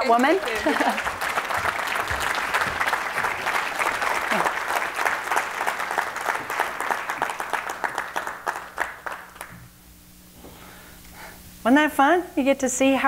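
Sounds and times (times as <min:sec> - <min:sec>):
audience applauding: 0:00.0 - 0:09.6.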